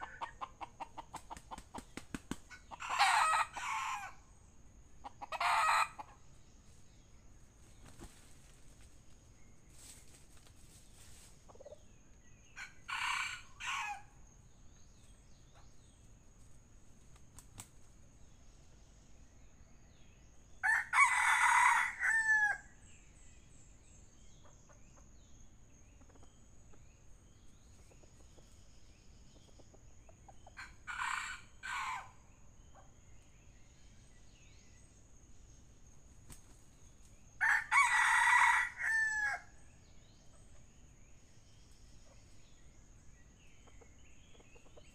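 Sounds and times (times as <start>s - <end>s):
roosters crowing: 2.6s - 4.2s, 5.2s - 6.2s, 12.6s - 14.1s, 20.6s - 22.7s, 30.6s - 32.2s, 37.4s - 39.6s.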